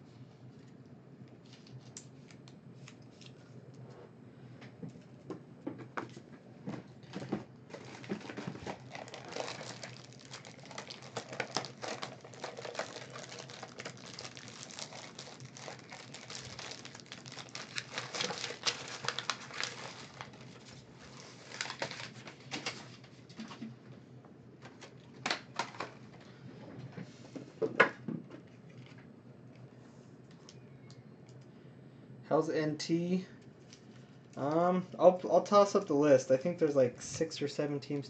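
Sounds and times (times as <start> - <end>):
small clicks and crackles: 7.7 - 20.7
wrappers crinkling: 7.7 - 22.8.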